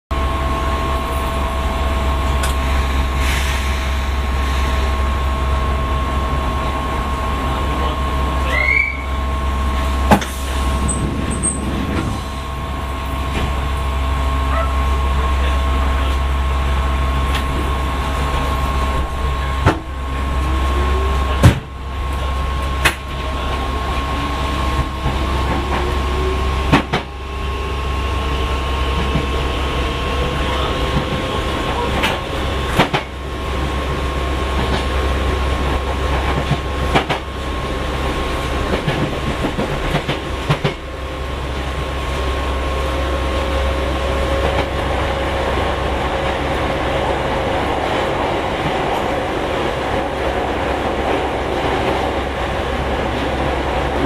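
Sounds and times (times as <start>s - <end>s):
train motor whine rising: 8.4s - 32.8s
low rumble: 9.1s - 14.5s.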